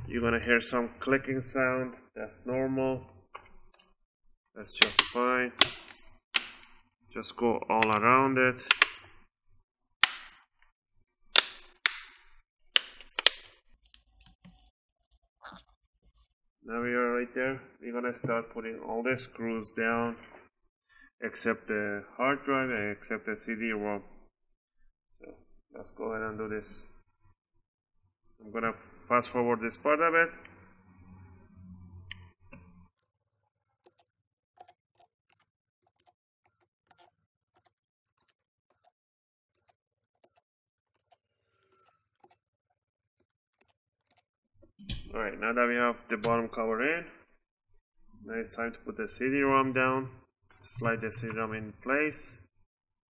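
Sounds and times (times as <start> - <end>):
plastic clips snapping into place: 4.8 - 6.7, 8.6 - 9.1, 10.0 - 10.4, 11.4 - 14.4
screwdriver driving small screws: 33.8 - 42.4, 43.6 - 44.3.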